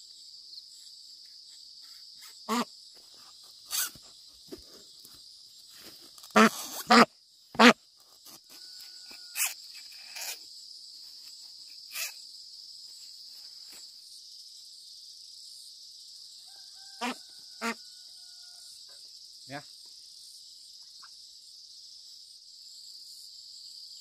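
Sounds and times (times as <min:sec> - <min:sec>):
high-pitched insect chorus: 0:00.0 - 0:24.0
short loud animal calls: 0:02.5 - 0:02.7, 0:06.4 - 0:07.8.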